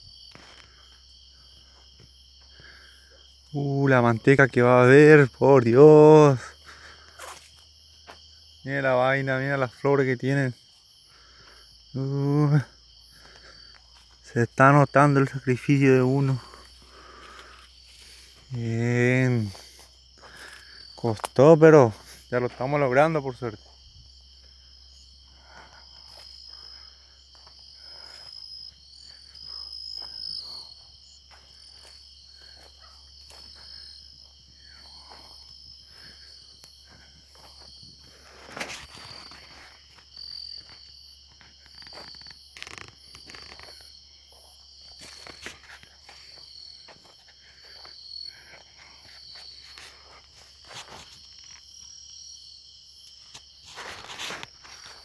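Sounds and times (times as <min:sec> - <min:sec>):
crickets and night insects calling: 0:00.0 - 0:55.0
footsteps: 0:06.4 - 0:08.2, 0:25.3 - 0:51.7, 0:53.3 - 0:55.0.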